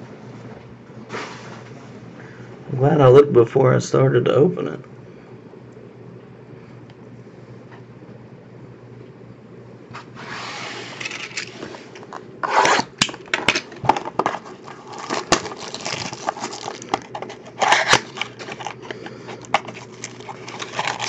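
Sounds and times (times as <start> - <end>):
packaging rustling and crinkling: 11.0 - 21.0.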